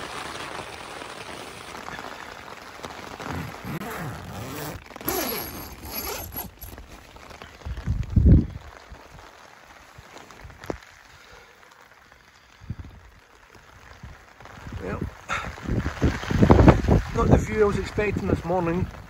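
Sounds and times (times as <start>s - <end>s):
rain pattering on tent fabric: 0.0s - 19.0s
tent door zip pulled: 3.3s - 7.0s
wind buffeting microphone: 7.6s - 8.7s, 14.0s - 18.9s.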